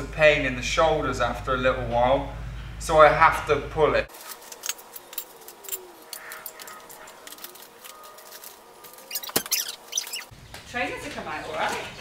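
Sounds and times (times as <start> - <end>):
stroller metal frame clicking: 4.5 - 10.3.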